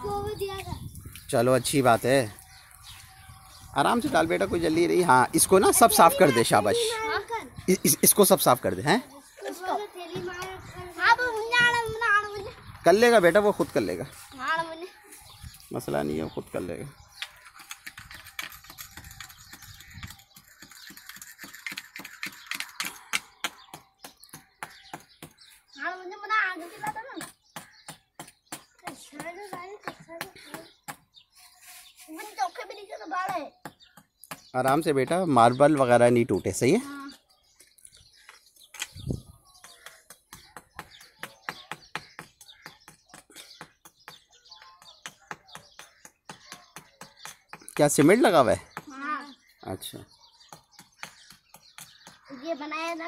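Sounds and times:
scrubber scratching gritty tiles: 0:17.3 - 0:23.2.

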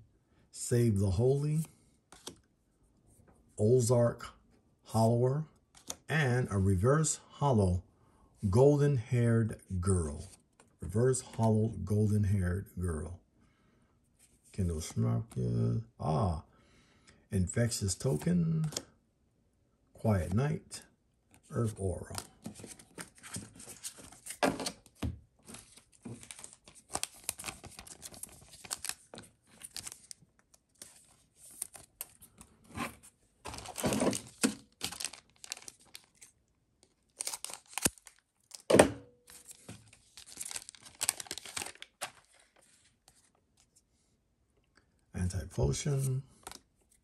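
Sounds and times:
card pack wrapper tearing and crinkling: 0:25.5 - 0:32.4, 0:33.5 - 0:42.6.

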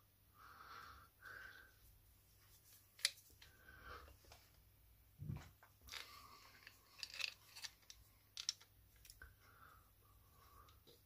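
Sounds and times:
small metal parts clicking and rattling: 0:05.8 - 0:09.2.

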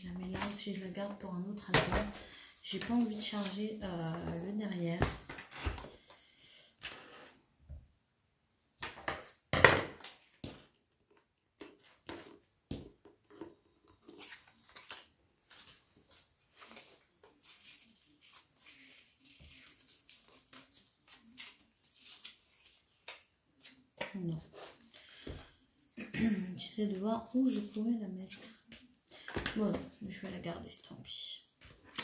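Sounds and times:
paper rustling: 0:13.8 - 0:24.9.

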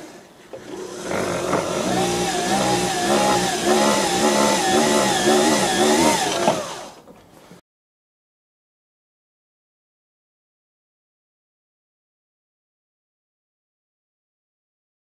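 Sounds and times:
drill motor whining into wood: 0:00.6 - 0:07.0.

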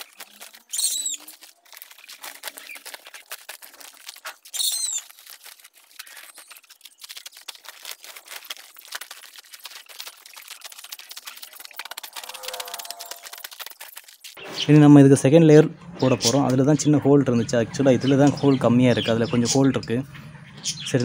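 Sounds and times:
plastic sheet crinkling and rustling: 0:00.0 - 0:14.4
bird call: 0:00.7 - 0:01.5, 0:11.7 - 0:13.4.

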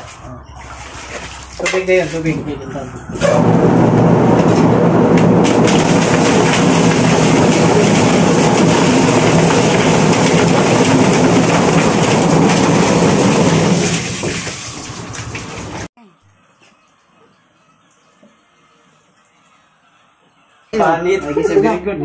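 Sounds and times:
water pouring: 0:00.0 - 0:02.4, 0:04.3 - 0:15.9
plucker motor hum: 0:03.0 - 0:13.5.

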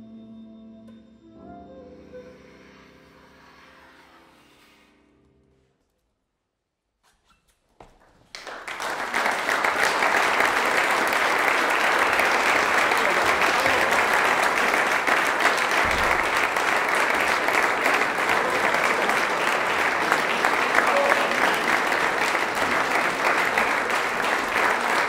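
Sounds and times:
audience applause: 0:08.3 - 0:25.0.

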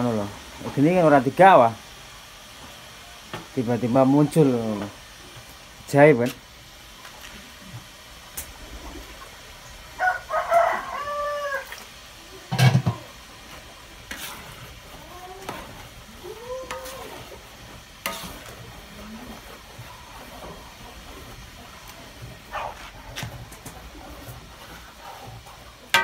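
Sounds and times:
rice stirred in metal wok: 0:00.0 - 0:26.0
chicken calls: 0:09.7 - 0:12.5
rooster crowing: 0:09.9 - 0:11.8.

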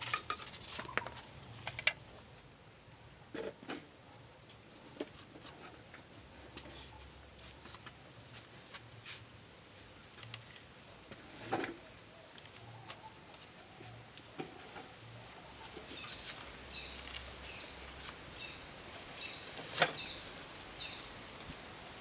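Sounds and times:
fruit snapping and rustling: 0:10.0 - 0:11.2, 0:16.0 - 0:18.5.

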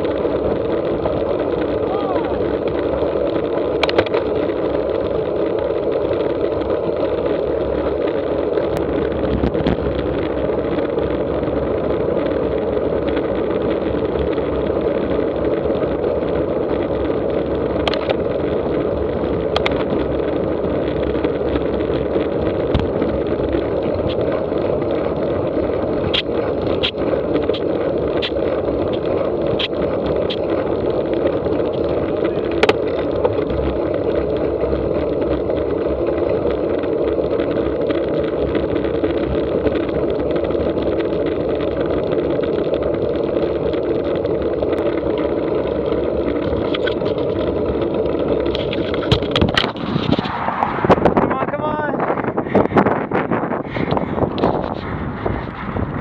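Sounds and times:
tyre hum on asphalt: 0:00.0 - 0:56.0
wind rushing over microphone: 0:00.0 - 0:56.0
sharp clicks and knocks: 0:02.6 - 0:04.9, 0:17.7 - 0:18.6, 0:19.3 - 0:20.3, 0:20.9 - 0:25.1, 0:25.7 - 0:51.3.

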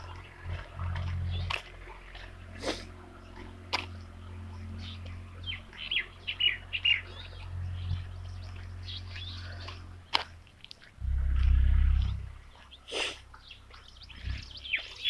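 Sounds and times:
loud low rumble: 0:00.0 - 0:10.0, 0:11.0 - 0:12.7
small birds chirping: 0:00.0 - 0:15.0.

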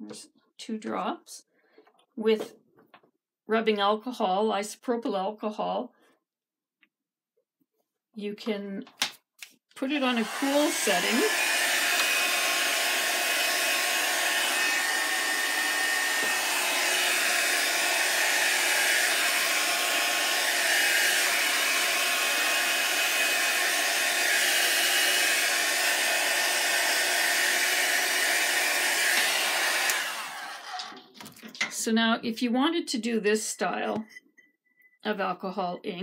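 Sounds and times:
hair dryer running: 0:09.8 - 0:31.0.

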